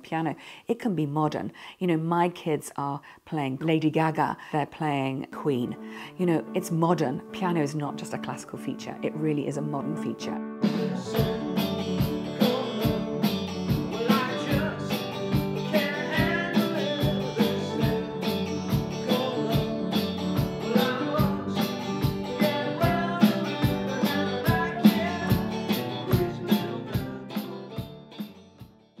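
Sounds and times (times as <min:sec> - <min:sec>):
country-rock guitar music: 0:09.7 - 0:29.0.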